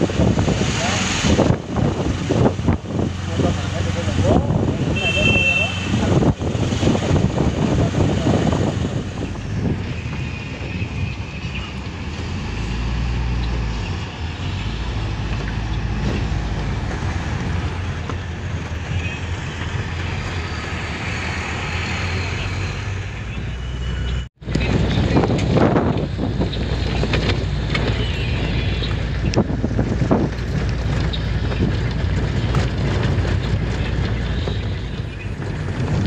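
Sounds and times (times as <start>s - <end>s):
vehicle engine and road noise: 0.0s - 36.0s.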